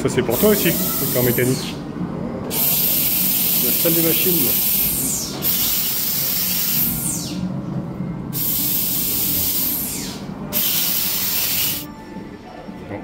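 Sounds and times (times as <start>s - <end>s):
low machinery hum: 0.0s - 2.6s, 4.5s - 12.6s
steam hissing blasts: 2.5s - 7.4s, 8.4s - 11.9s.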